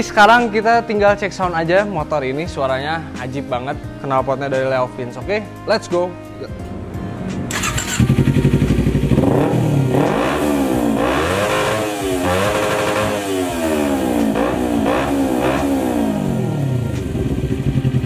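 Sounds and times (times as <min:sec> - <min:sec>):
motorcycle engine revving: 0:06.7 - 0:18.0
motorcycle engine idling: 0:07.5 - 0:10.4, 0:11.8 - 0:18.0.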